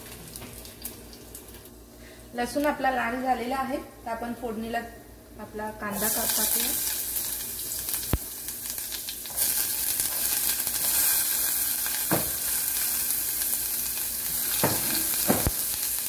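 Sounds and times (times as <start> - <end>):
onion and garlic sizzling in oil: 5.8 - 16.0.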